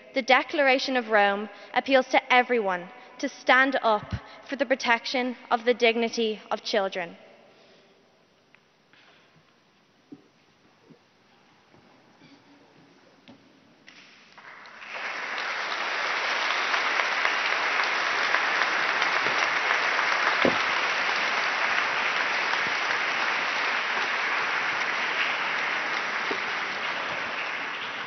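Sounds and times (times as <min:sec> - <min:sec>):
audience applauding: 0:14.4 - 0:28.0.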